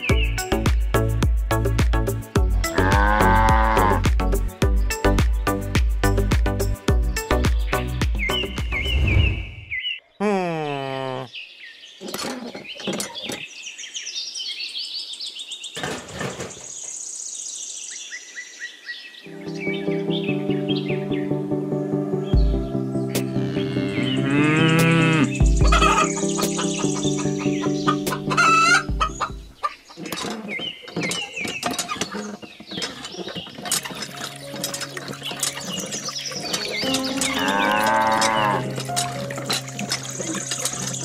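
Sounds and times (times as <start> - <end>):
small birds chirping: 0.0 - 1.1, 6.8 - 15.8, 16.4 - 21.4, 22.2 - 41.0
high bird trill: 23.9 - 32.5, 34.4 - 38.7
chicken clucking: 25.7 - 32.2.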